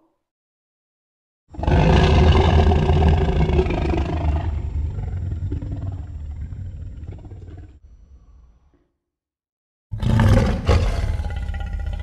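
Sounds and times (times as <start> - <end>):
deep dinosaur roar: 1.5 - 7.8, 9.9 - 12.0.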